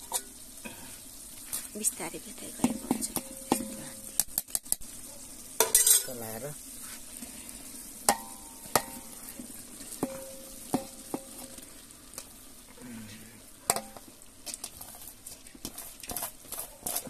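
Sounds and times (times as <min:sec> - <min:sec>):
light frying sizzle: 0:00.0 - 0:17.0
metal spoon clinking in pot: 0:05.6 - 0:06.1.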